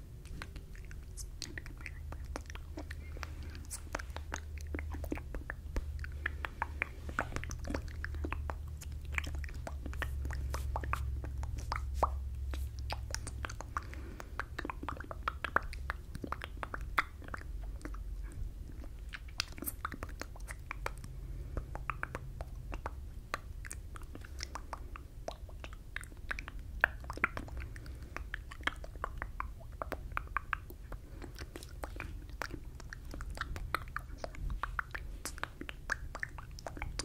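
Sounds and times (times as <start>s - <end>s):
wet mouth clicks and lip smacks: 0.1s - 37.0s.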